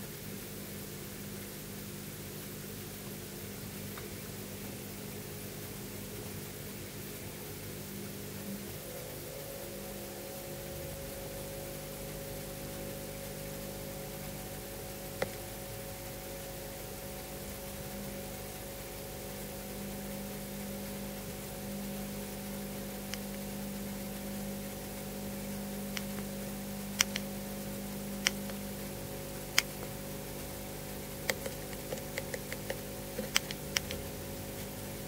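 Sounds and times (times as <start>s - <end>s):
electronic hiss and hum: 0.0s - 35.0s.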